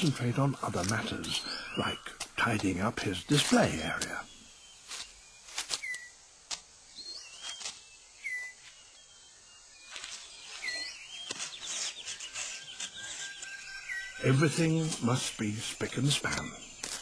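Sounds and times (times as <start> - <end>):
rapid high bird trill: 0.0 - 6.2, 6.9 - 17.0
sharp clicks and rustles: 4.8 - 6.7
short whistled bird calls: 4.9 - 6.2, 6.9 - 9.3, 9.9 - 14.9.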